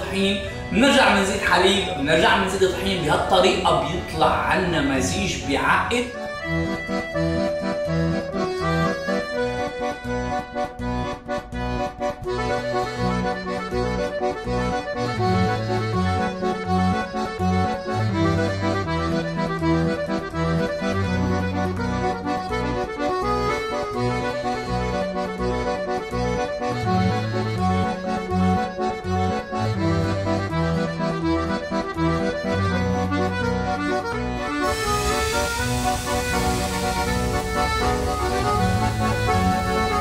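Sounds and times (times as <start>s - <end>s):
accordion music: 0.0s - 40.0s
repeating bass line: 34.5s - 40.0s.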